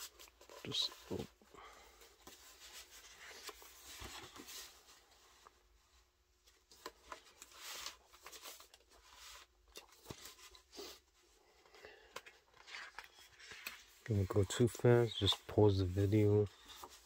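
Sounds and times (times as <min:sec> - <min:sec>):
book pages turning: 0:02.2 - 0:04.8, 0:06.5 - 0:11.1, 0:12.0 - 0:17.0.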